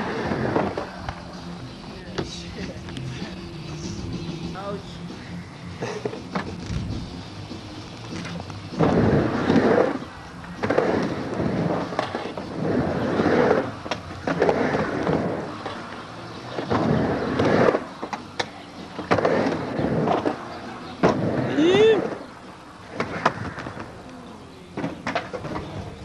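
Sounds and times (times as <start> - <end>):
skateboard wheels rolling on ramp: 0.0 - 2.8, 5.9 - 26.0
skateboard clacking on ramp: 24.7 - 26.0.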